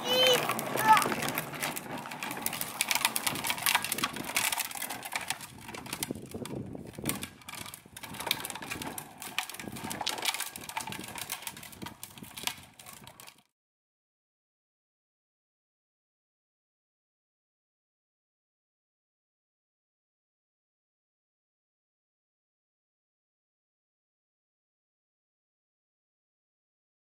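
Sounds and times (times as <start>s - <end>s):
plastic toy wheels rattling on asphalt: 0.0s - 13.5s.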